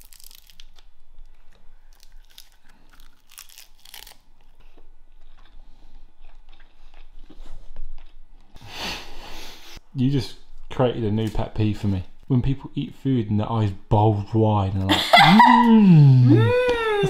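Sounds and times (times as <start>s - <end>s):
seaweed crunching as chewed: 0.0s - 8.2s.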